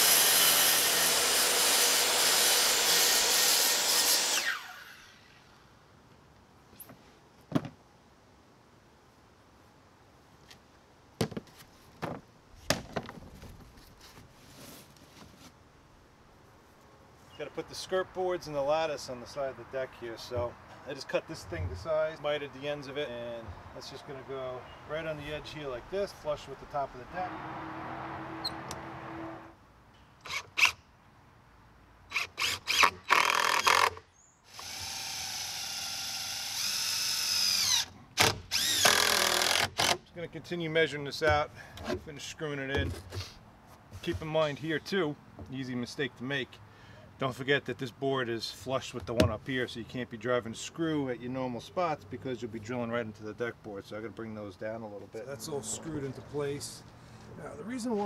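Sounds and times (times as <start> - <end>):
cordless drill driving into wood: 0.0 - 5.2, 32.1 - 40.0
board scraping and rustling: 11.2 - 15.6, 42.8 - 44.5.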